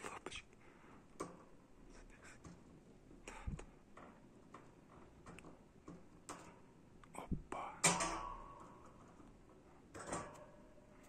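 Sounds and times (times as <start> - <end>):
hamster clicking on wire bars: 7.8 - 9.3.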